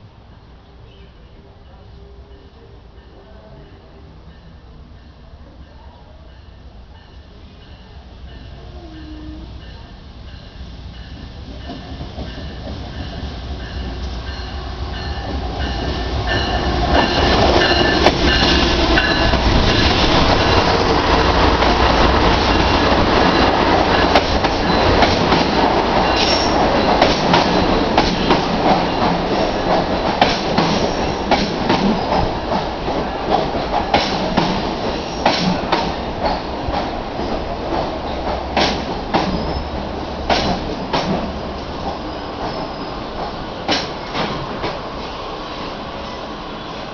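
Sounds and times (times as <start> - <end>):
diesel locomotive: 0.0 - 46.9
high wheel squeals: 26.0 - 27.0.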